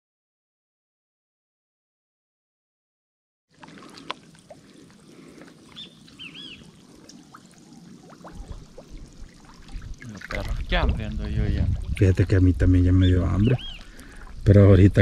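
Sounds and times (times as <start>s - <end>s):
water trickling and splashing: 3.5s - 15.0s
faint bird chirps: 5.6s - 6.8s, 12.9s - 14.0s.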